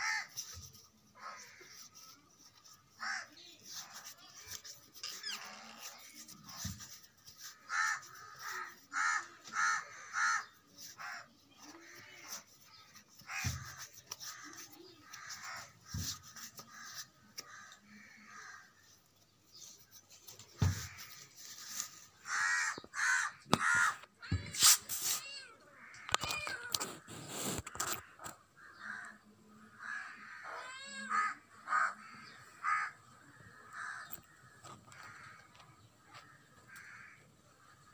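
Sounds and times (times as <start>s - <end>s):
crows cawing: 0.0s - 0.5s, 1.2s - 4.6s, 5.4s - 18.9s, 22.2s - 24.1s, 25.7s - 26.4s, 28.0s - 37.9s.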